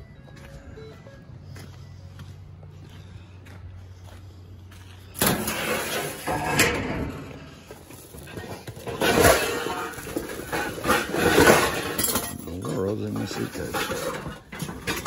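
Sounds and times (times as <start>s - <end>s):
metal dumpster door pulled open: 5.2s - 7.7s, 8.8s - 12.4s.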